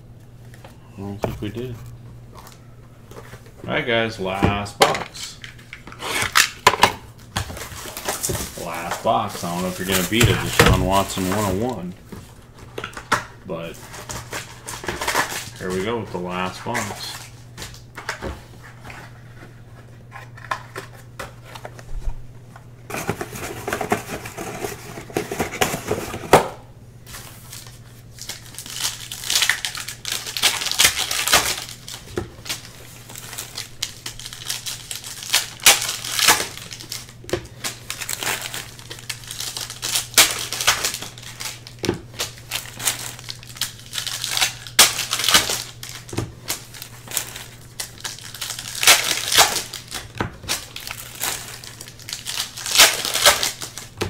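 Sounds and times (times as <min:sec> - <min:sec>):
wrapper tearing and crinkling: 0:05.3 - 0:06.7, 0:07.3 - 0:11.9, 0:13.7 - 0:18.0, 0:27.1 - 0:54.0
cards being handled: 0:07.4 - 0:13.1.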